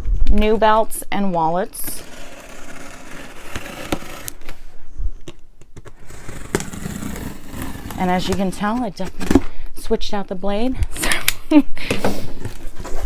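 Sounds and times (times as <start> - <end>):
knife cutting tape and cardboard: 1.6 - 4.4, 5.8 - 9.4.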